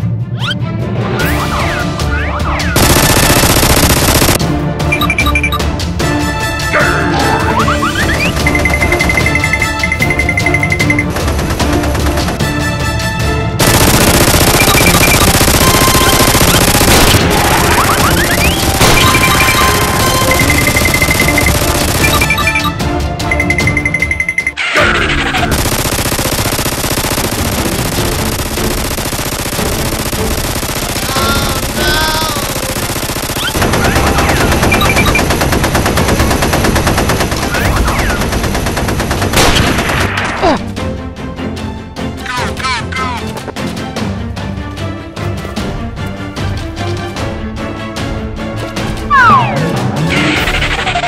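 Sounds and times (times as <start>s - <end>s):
rapid automatic gunfire: 2.8s - 5.2s, 8.0s - 12.6s, 13.6s - 22.7s, 25.2s - 40.4s.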